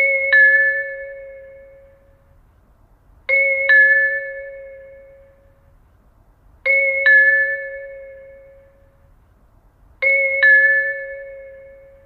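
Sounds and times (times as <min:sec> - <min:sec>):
two-tone train approach chime: 0:03.3 - 0:05.7, 0:06.7 - 0:09.2, 0:10.0 - 0:12.0.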